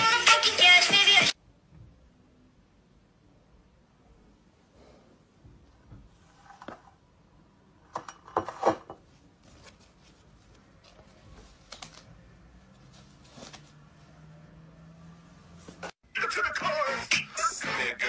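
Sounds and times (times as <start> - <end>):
face mask rustling: 9.1 - 14.4.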